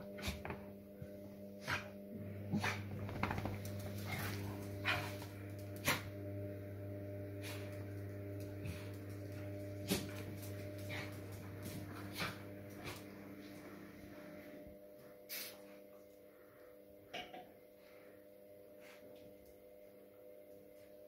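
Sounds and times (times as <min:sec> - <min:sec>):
low hum: 0:00.0 - 0:15.1.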